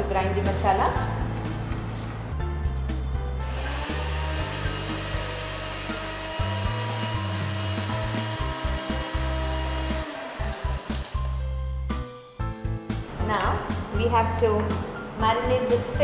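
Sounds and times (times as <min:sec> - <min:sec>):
electric blender grinding: 0:03.4 - 0:11.6.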